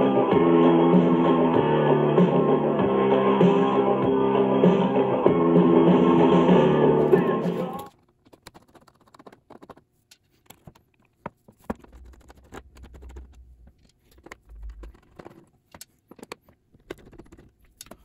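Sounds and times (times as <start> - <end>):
rock music: 0.0 - 7.8.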